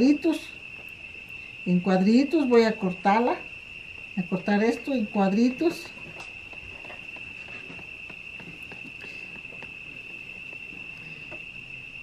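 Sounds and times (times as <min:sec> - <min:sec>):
high-pitched insect trill: 0:00.0 - 0:12.0.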